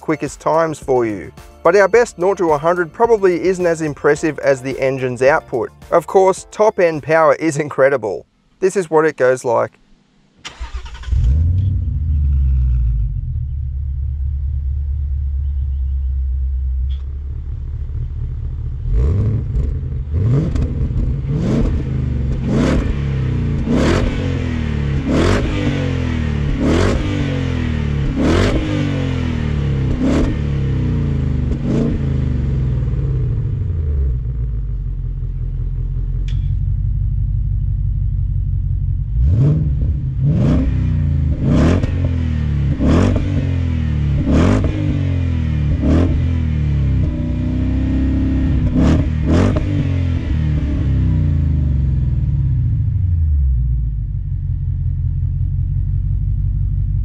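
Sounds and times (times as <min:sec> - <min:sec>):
car engine starting and idling: 0:00.0 - 0:57.0
engine revving: 0:10.4 - 0:34.8, 0:39.0 - 0:53.8.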